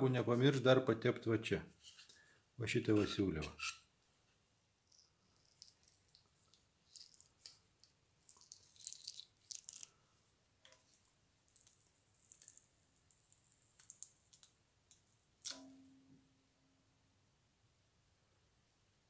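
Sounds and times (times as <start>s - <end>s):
hand tool clicking and scraping: 3.0s - 3.8s.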